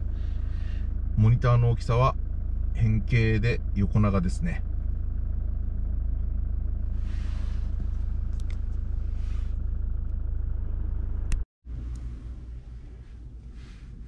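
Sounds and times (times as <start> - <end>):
diesel engine idling: 0.0 - 14.0
soft rustles: 11.8 - 14.0.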